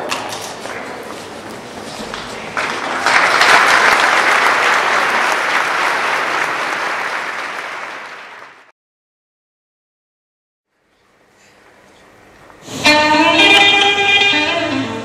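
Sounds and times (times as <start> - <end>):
audience applauding: 2.1 - 8.7.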